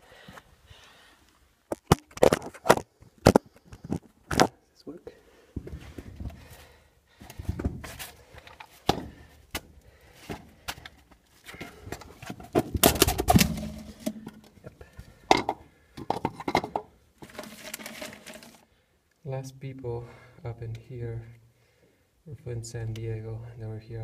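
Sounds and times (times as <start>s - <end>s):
plastic bag crinkling: 17.2s - 18.6s.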